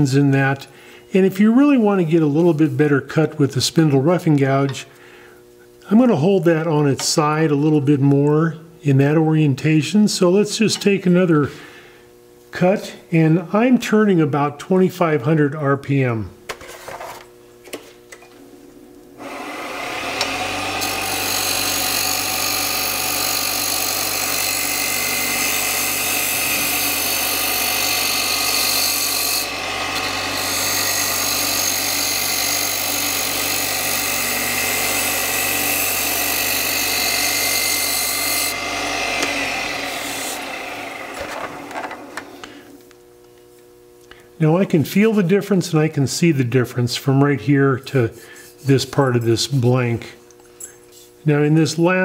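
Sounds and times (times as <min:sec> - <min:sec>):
lathe motor hum: 0:19.2 - 0:42.8.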